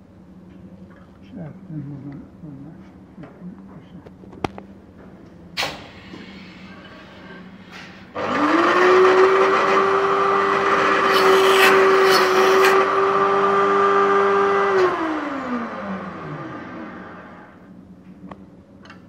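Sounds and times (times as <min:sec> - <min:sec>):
electric cutter motor whine: 0:08.2 - 0:17.6
cutter notching metal bar: 0:11.0 - 0:12.8.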